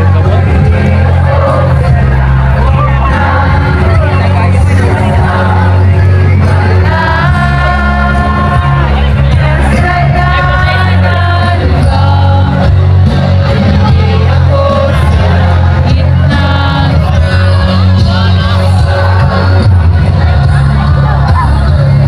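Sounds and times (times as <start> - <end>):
live band playing: 0.0 - 22.0.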